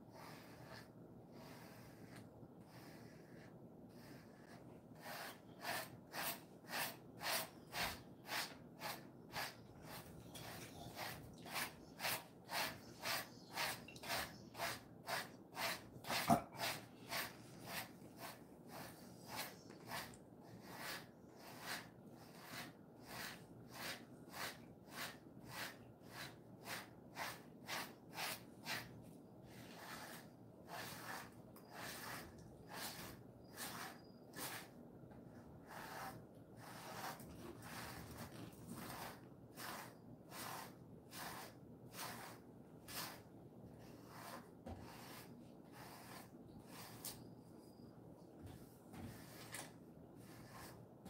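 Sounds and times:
brush swishing through dog fur: 0:00.1 - 0:28.9.

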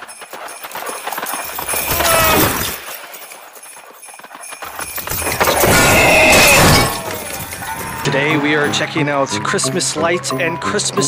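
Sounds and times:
hooves clip-clopping at a gallop: 0:00.0 - 0:08.2.

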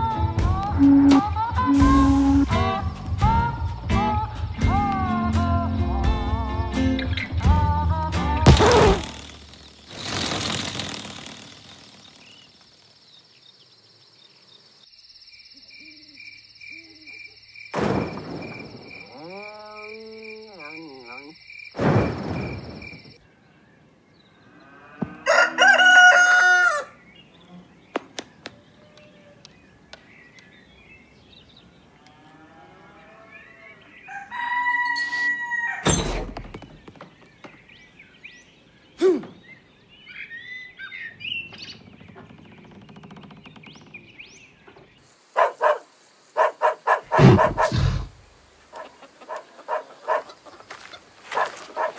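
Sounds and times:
short swishes: 0:08.5 - 0:11.8
rooster crowing: 0:25.0 - 0:27.0, 0:33.7 - 0:35.9.

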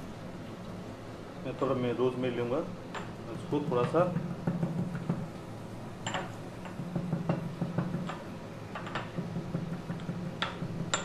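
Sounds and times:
steady low hum: 0:00.0 - 0:11.0
pestle knocking and grinding in mortar: 0:03.7 - 0:05.3, 0:06.7 - 0:08.2, 0:08.8 - 0:11.0.

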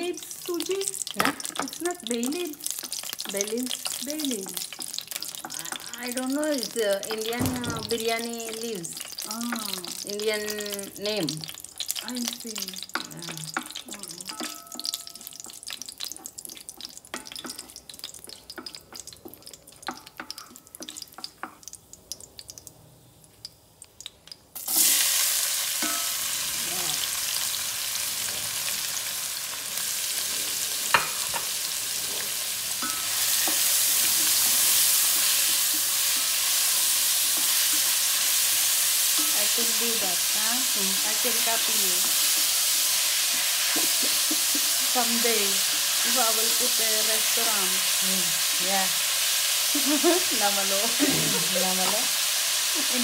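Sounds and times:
onions sizzling in hot oil: 0:00.0 - 0:53.0
wooden spoon stirring in pot: 0:00.4 - 0:21.8, 0:28.7 - 0:48.6.

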